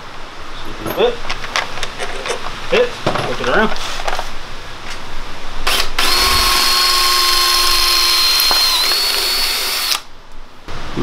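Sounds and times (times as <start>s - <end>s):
cordless drill running: 5.6s - 10.1s.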